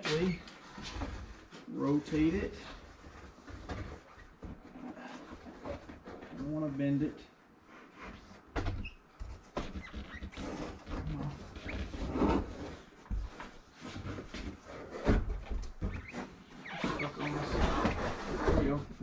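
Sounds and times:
board scraping against trim: 0:09.4 - 0:19.0.

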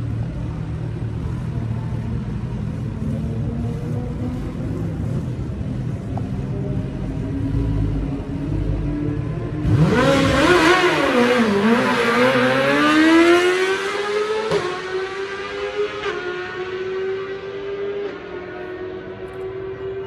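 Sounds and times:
motorcycle engine revving: 0:08.6 - 0:19.8.

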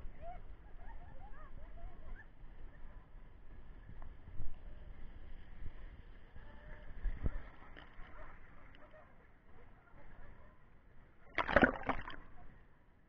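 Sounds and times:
pool water sloshing and lapping: 0:11.3 - 0:12.4
cascade pouring into pool: 0:11.4 - 0:12.2
loud water splash: 0:11.4 - 0:12.2.

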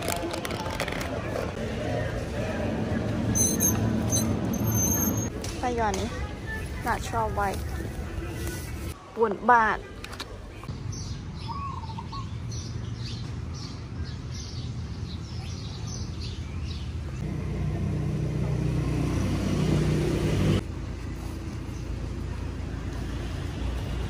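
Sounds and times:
low traffic rumble: 0:00.0 - 0:09.1, 0:09.8 - 0:24.0
vehicle engine passing: 0:17.2 - 0:20.8.

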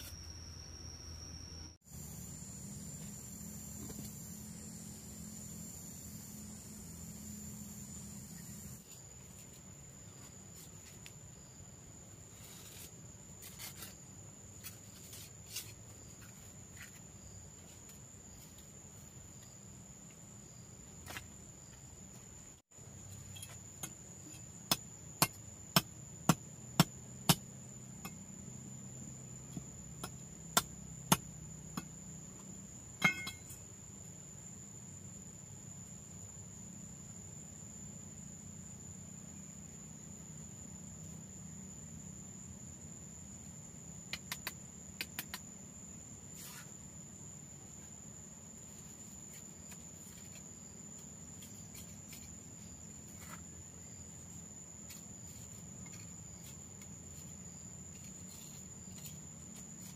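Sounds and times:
trowel knocking on concrete blocks: 0:33.0 - 0:33.6.

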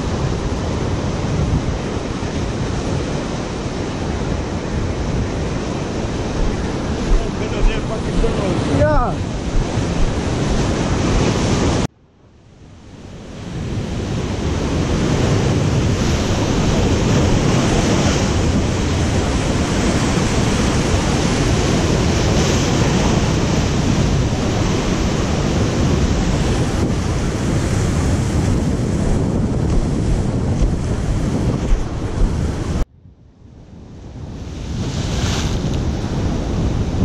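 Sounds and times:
surf breaking over rocks: 0:00.0 - 0:11.9
wind rumbling on microphone: 0:00.0 - 0:11.9, 0:12.6 - 0:37.0.

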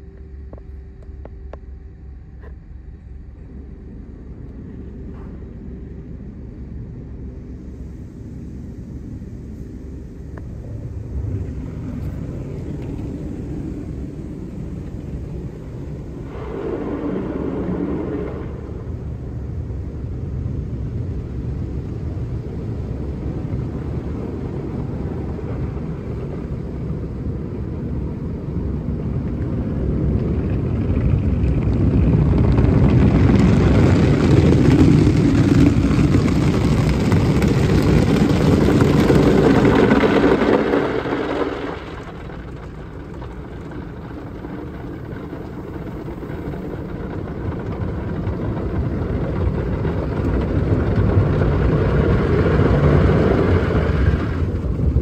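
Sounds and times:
steady rumble: 0:00.0 - 0:55.0
water and foam pouring on windshield: 0:29.4 - 0:55.0.

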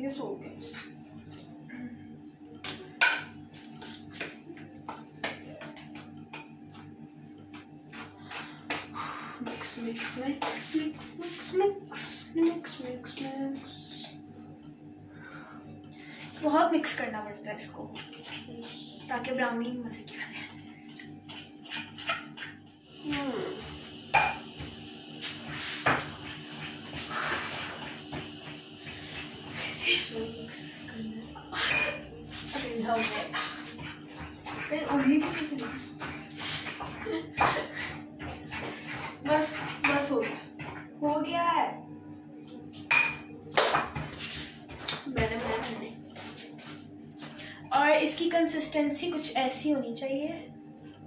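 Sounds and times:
utensil scraping a bowl: 0:17.7 - 0:19.2, 0:20.4 - 0:22.6, 0:31.6 - 0:40.8.

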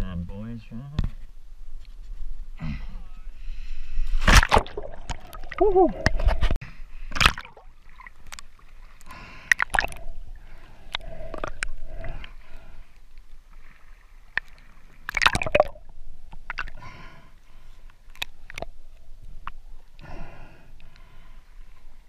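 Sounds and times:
water sloshing and gurgling: 0:03.5 - 0:22.0
water splashing: 0:04.2 - 0:06.6, 0:07.2 - 0:12.7, 0:13.4 - 0:16.9.

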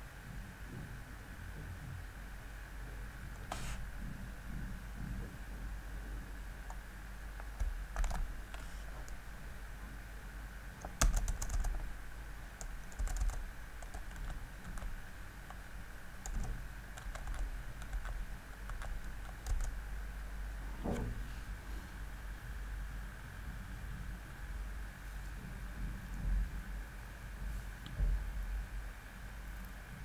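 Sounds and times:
faint steady hum: 0:00.0 - 0:30.0
keyboard typing clicks: 0:07.4 - 0:09.2, 0:10.8 - 0:11.9, 0:12.6 - 0:15.6, 0:16.2 - 0:19.8.

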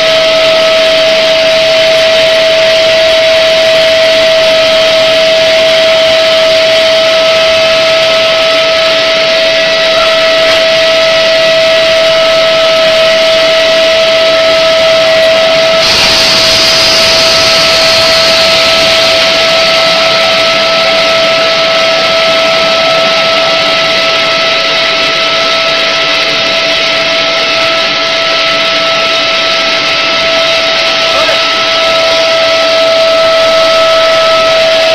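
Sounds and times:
machine drone with whine: 0:00.0 - 0:34.9
bright hiss: 0:15.3 - 0:21.5.

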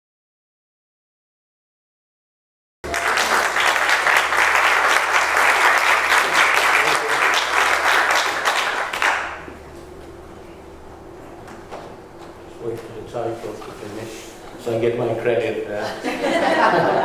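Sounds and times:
audience applauding: 0:02.8 - 0:09.6
faint room hum: 0:02.8 - 0:17.0.

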